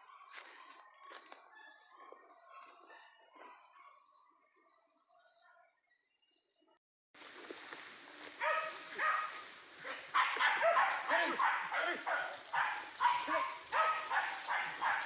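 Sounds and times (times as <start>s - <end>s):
high insect drone: 7.2s - 15.0s
rustling undergrowth: 7.2s - 15.0s
dogs yelping and baying: 8.4s - 15.0s.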